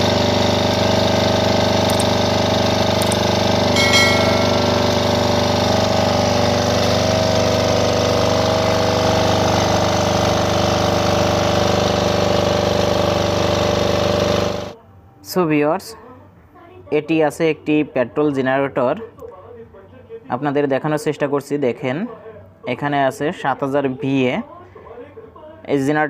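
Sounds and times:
generator engine running: 0:00.0 - 0:14.8
brief high-pitched tone: 0:03.8 - 0:05.6.

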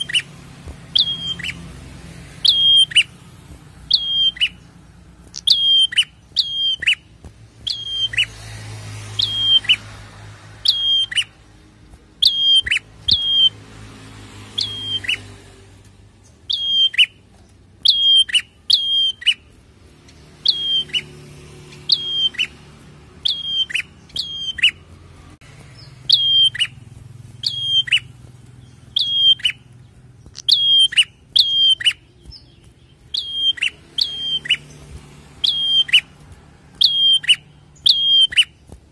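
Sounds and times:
bird calling high notes: 0:00.0 - 0:01.7, 0:02.4 - 0:03.2, 0:03.9 - 0:04.7, 0:05.3 - 0:07.1, 0:07.7 - 0:08.3, 0:09.2 - 0:09.9, 0:10.6 - 0:11.4, 0:12.2 - 0:13.6, 0:16.5 - 0:17.2, 0:17.8 - 0:19.5, 0:20.4 - 0:21.1, 0:23.2 - 0:24.9, 0:26.0 - 0:26.8, 0:27.4 - 0:28.1, 0:28.8 - 0:29.7, 0:30.3 - 0:32.1, 0:33.0 - 0:34.7, 0:35.4 - 0:36.2, 0:36.8 - 0:38.6.

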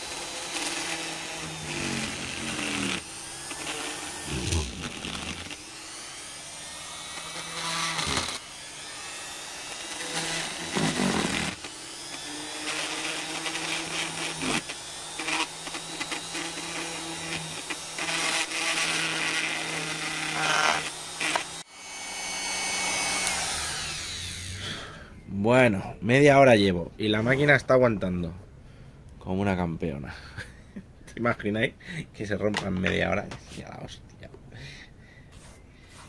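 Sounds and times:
grinder carving wood: 0:00.0 - 0:25.0.

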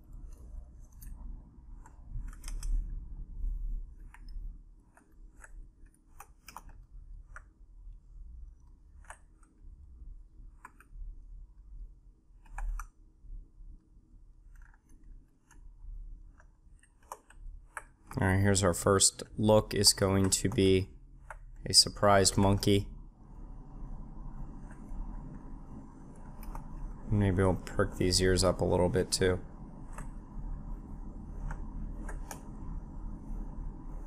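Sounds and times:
low steady hum: 0:00.0 - 0:34.0
computer mouse clicks: 0:00.1 - 0:03.0, 0:03.8 - 0:07.5, 0:08.6 - 0:09.6, 0:10.5 - 0:11.0, 0:12.4 - 0:13.0, 0:14.4 - 0:18.2, 0:20.0 - 0:21.6, 0:24.4 - 0:27.1, 0:29.8 - 0:30.3, 0:31.3 - 0:32.8
keyboard clicks: 0:01.8 - 0:02.9, 0:04.0 - 0:07.5, 0:08.6 - 0:09.6, 0:10.6 - 0:11.0, 0:12.4 - 0:13.0, 0:16.3 - 0:18.2, 0:31.4 - 0:32.5.

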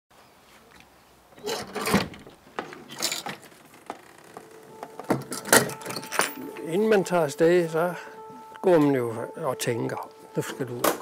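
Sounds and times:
metal lock scraping and clicking: 0:01.4 - 0:04.5.

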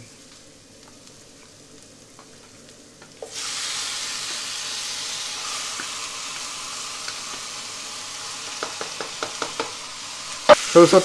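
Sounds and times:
chicken sizzling in oil: 0:00.0 - 0:11.0.

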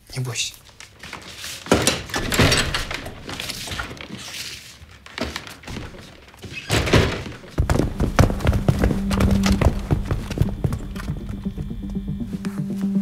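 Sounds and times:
wooden door knocking and thumping shut: 0:01.7 - 0:04.0, 0:05.2 - 0:10.7.

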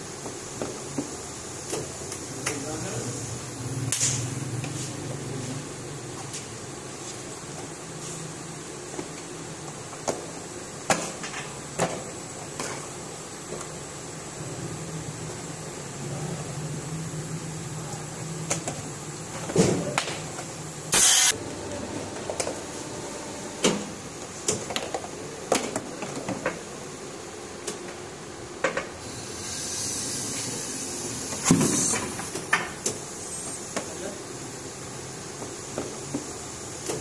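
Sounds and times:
compressed air hissing: 0:20.6 - 0:21.4, 0:29.0 - 0:33.9.

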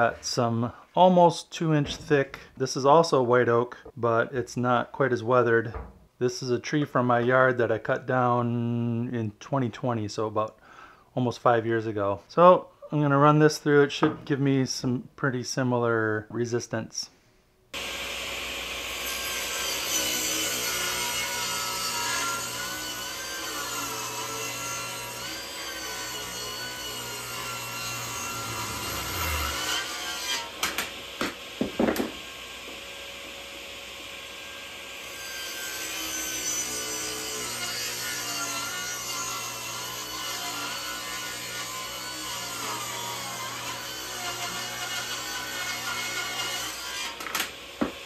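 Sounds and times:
table saw cutting wood: 0:17.8 - 0:48.0
sharp knocks: 0:30.6 - 0:32.2.

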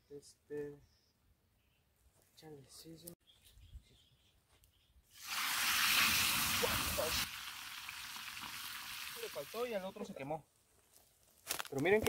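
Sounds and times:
fire sizzling in metal drum stove: 0:05.2 - 0:09.9.

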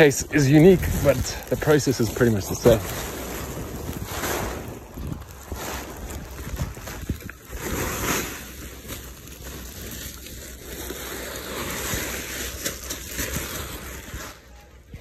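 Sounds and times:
wind buffeting microphone: 0:00.0 - 0:07.6.

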